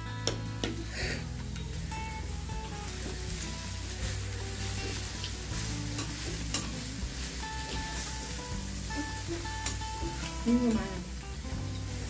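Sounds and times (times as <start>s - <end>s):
faint melody: 0.0s - 12.0s
meat sizzling on grill pan: 0.9s - 12.0s
utensils clicking against pan: 4.1s - 10.8s.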